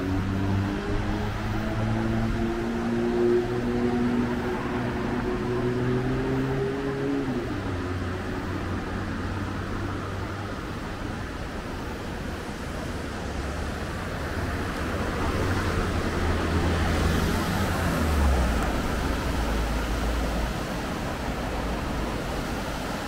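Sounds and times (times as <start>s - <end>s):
street traffic rumble: 0.0s - 23.0s
vehicle passing: 12.2s - 23.0s.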